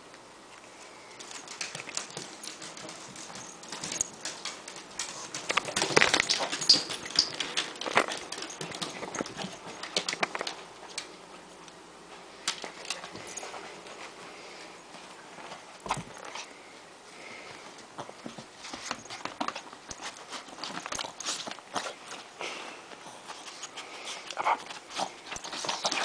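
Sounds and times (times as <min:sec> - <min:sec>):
plastic bag crinkling: 0:01.2 - 0:10.6.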